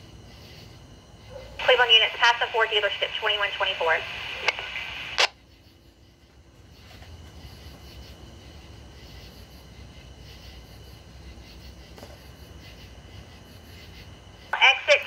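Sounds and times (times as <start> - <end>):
faint radio hiss: 1.6 - 7.8, 12.7 - 15.0.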